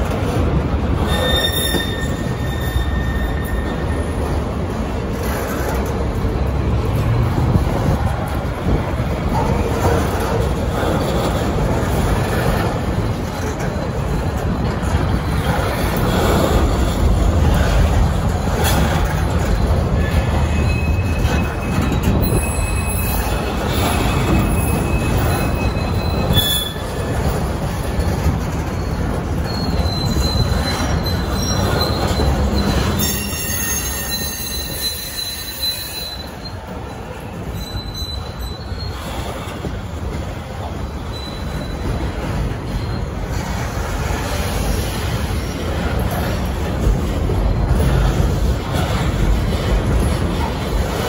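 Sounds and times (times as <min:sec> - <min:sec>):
train wheels rumbling on rails: 0:00.0 - 0:51.0
high wheel squeals: 0:01.0 - 0:04.4, 0:09.7 - 0:45.9.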